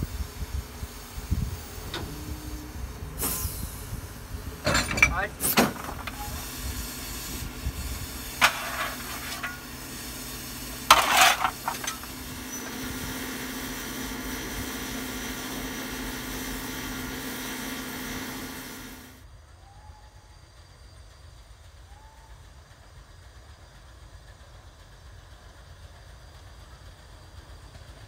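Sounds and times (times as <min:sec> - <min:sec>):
steam locomotive hissing: 0:00.0 - 0:28.0
rattle: 0:04.6 - 0:12.8.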